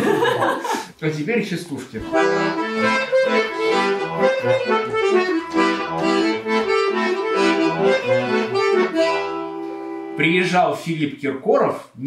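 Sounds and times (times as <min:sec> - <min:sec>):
accordion folk tune: 0:02.0 - 0:10.7.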